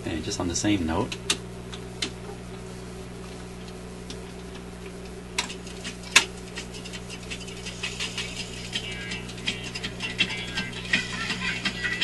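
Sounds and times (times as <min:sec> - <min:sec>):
record player hum: 0:00.0 - 0:12.0
faint record ticks: 0:03.3 - 0:07.6.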